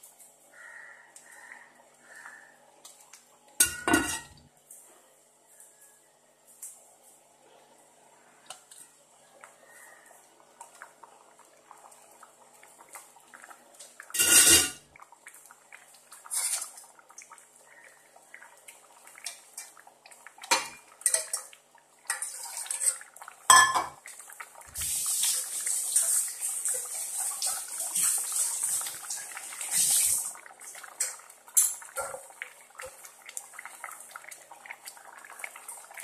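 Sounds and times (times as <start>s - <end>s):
pot simmering with steady hiss: 0.0s - 36.0s
stainless steel cookware clattering: 3.6s - 4.4s, 22.1s - 24.0s.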